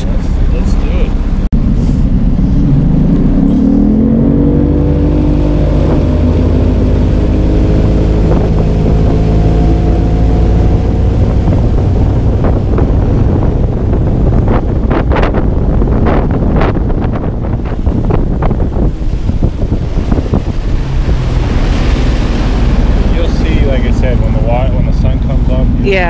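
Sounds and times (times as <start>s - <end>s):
outboard motor revving: 0.0s - 26.0s.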